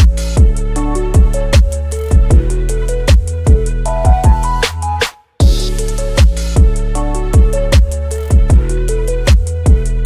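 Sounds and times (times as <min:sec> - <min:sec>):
deep kick drum beat: 0:00.0 - 0:04.6, 0:05.4 - 0:10.0
electronic music: 0:00.0 - 0:10.0.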